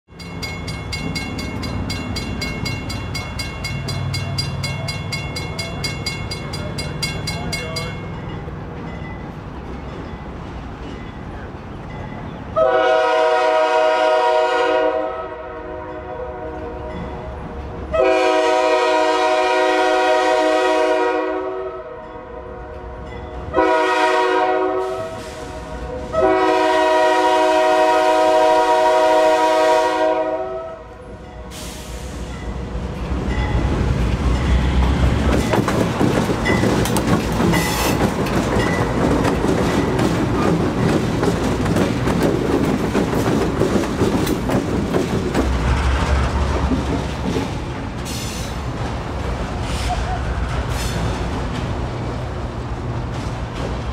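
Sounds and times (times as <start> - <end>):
locomotive chime horn blasts: 12.5 - 17.2, 17.9 - 31.8
locomotive engine rumble: 31.0 - 53.9
wheels clattering over rail joints: 32.9 - 53.9.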